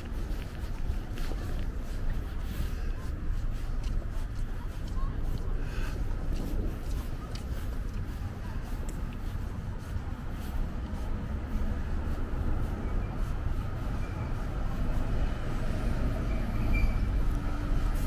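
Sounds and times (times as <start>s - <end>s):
heavy vehicle rumble: 0.0s - 18.0s
faint high squeals: 16.2s - 17.2s.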